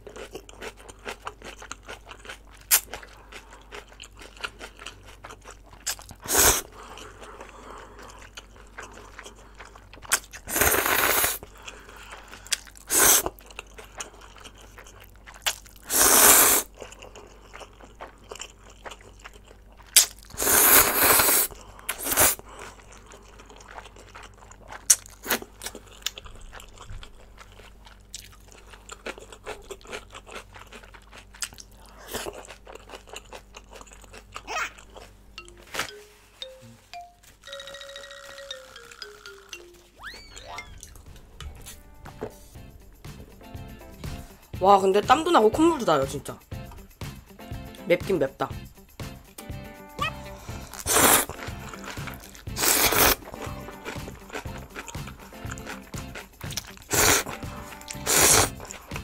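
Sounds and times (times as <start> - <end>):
wet chewing: 0.0 - 35.6, 50.3 - 59.0
slurping noodles: 5.8 - 8.2, 10.4 - 11.4, 12.8 - 13.4, 15.4 - 16.8, 20.0 - 22.4, 50.5 - 56.0, 56.6 - 59.0.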